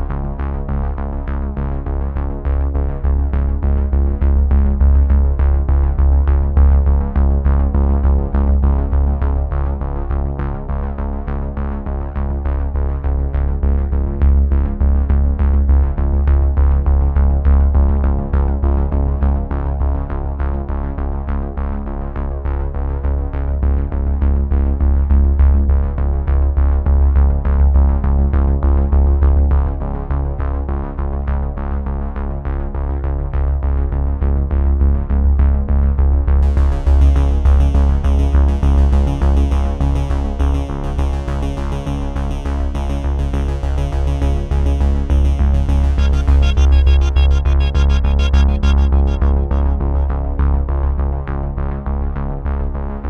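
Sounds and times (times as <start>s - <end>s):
electronic music: 42.3s - 51.1s.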